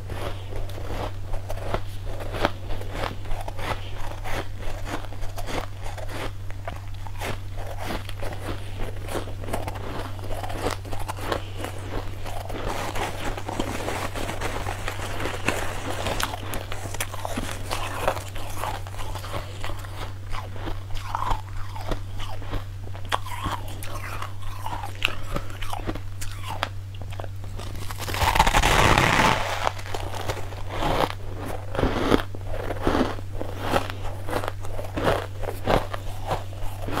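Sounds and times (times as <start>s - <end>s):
chewing crunchy ice: 0.0s - 37.0s
steady low hum: 0.0s - 37.0s
rustling crunching rush: 7.1s - 21.8s, 27.5s - 37.0s.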